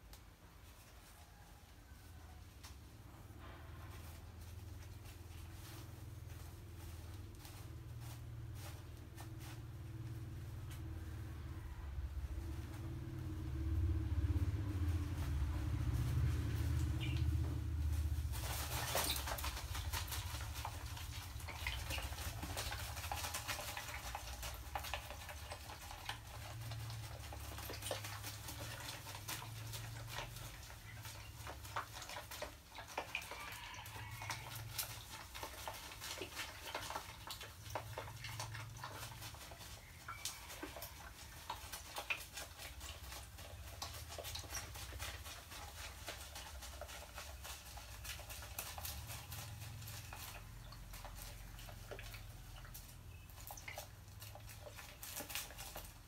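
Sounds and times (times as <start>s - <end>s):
low steady hum: 1.9s - 32.2s
rat splashing in water: 18.2s - 45.3s, 46.0s - 56.0s.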